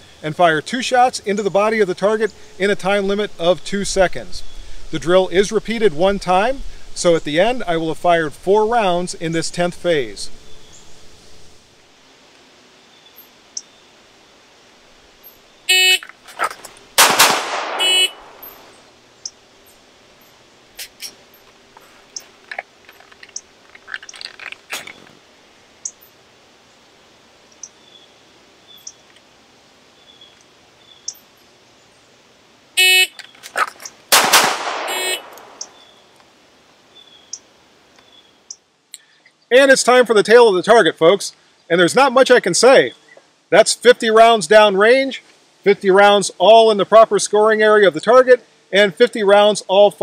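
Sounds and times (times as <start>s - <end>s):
pistol shots: 17.0s - 18.6s, 34.1s - 35.7s.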